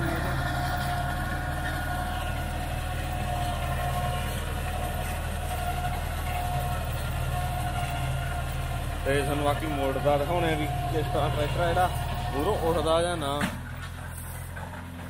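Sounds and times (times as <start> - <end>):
tractor diesel engine droning: 0.0 - 15.0.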